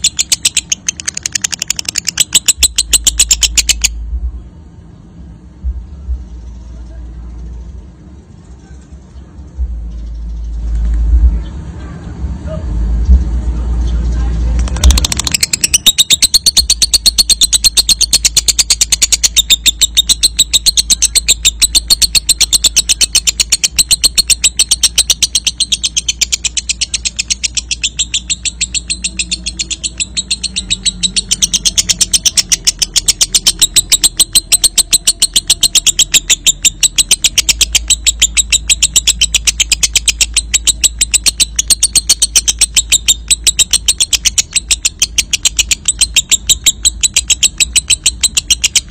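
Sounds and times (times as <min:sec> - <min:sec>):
lovebird shrill chattering: 0:00.0 - 0:04.0, 0:14.6 - 0:48.9.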